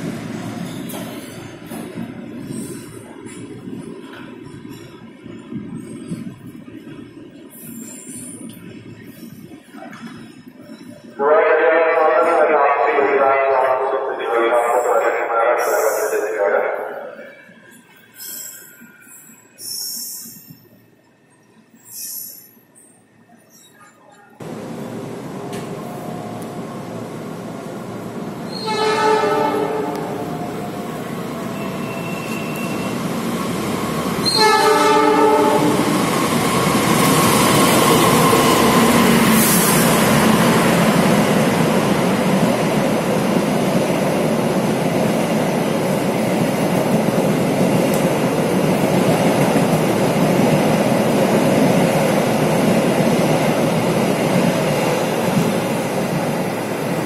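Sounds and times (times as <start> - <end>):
train wheels rumbling past: 24.4 - 57.0
train horn blasts: 28.5 - 30.4, 34.2 - 35.9.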